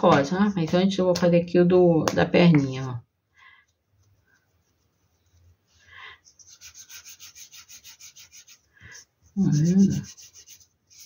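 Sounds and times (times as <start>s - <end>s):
paintbrush scrubbing on foam: 3.8s - 11.0s.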